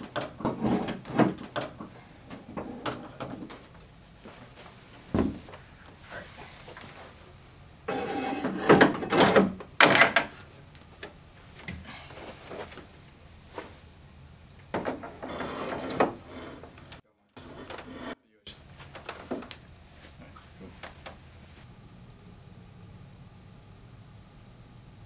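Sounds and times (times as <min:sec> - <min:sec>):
metal knocks and scraping: 0:00.0 - 0:03.6, 0:07.9 - 0:10.3, 0:14.7 - 0:18.2
thump: 0:05.1 - 0:05.4.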